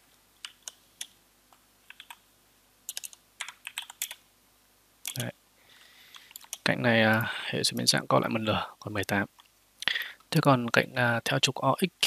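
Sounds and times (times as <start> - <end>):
computer keyboard typing: 0.4 - 1.2, 1.8 - 2.2, 2.9 - 4.2, 5.0 - 5.3, 6.1 - 7.2.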